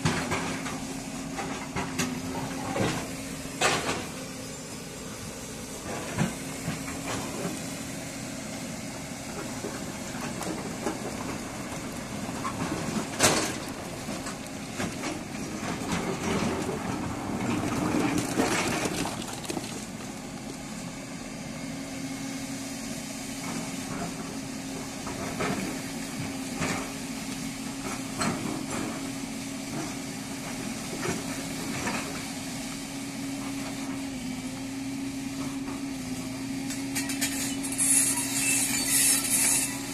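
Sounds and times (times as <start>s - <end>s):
excavator diesel engine: 0.0s - 39.9s
rocks knocking: 17.8s - 20.6s.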